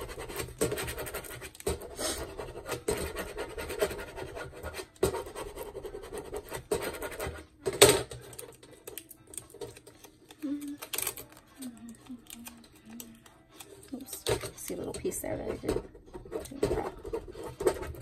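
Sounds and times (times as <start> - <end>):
decal sheet scratching and rustling: 0.0 - 7.5, 13.6 - 18.0.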